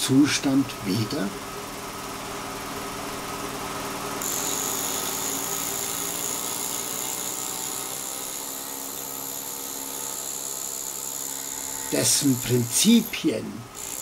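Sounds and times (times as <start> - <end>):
rotary grinder whining: 4.2 - 14.0.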